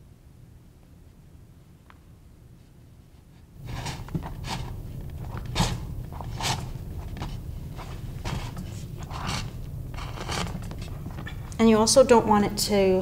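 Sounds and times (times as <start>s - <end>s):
hide lacing scraping: 2.7s - 11.5s.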